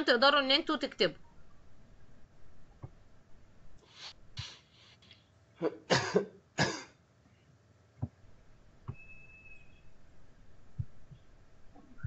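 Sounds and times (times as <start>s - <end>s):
person clearing throat: 5.6s - 7.0s
person coughing: 5.6s - 7.0s.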